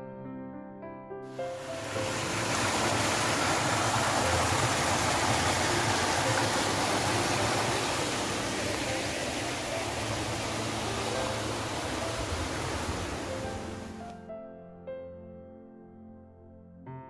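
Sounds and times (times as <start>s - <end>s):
stream rushing over rocks: 1.3s - 14.1s.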